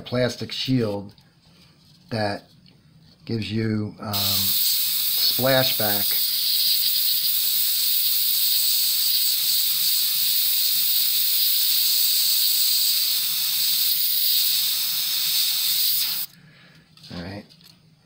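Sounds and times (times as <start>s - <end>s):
airbrush hissing: 4.1s - 16.3s.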